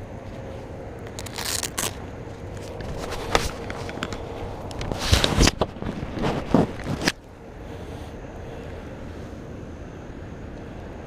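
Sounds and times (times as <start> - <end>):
close rustling and clicks: 0.2 - 7.3.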